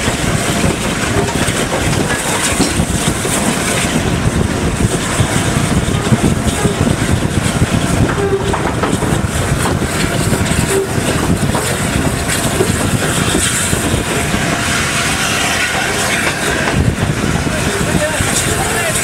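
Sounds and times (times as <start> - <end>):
steam locomotive rumbling: 0.0 - 19.0.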